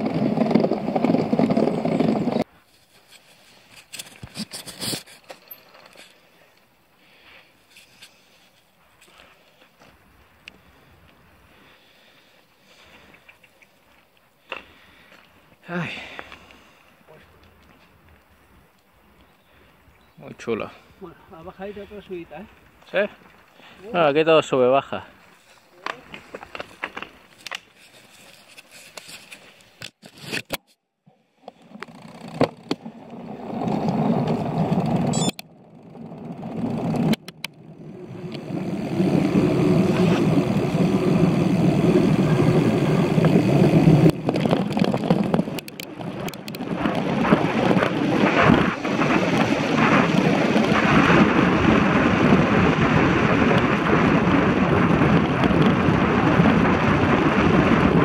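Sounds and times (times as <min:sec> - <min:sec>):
tyres rolling on wet asphalt: 0:00.0 - 0:02.4, 0:31.7 - 0:58.0
wind rushing over microphone: 0:36.0 - 0:58.0
sharp clicks and rattles: 0:36.2 - 0:37.6, 0:44.0 - 0:51.0.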